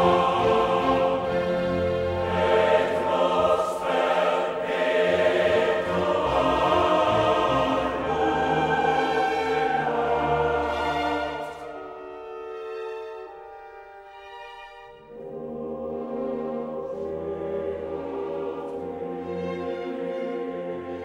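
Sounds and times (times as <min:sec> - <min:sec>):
choir holding long chords: 0:00.0 - 0:21.0.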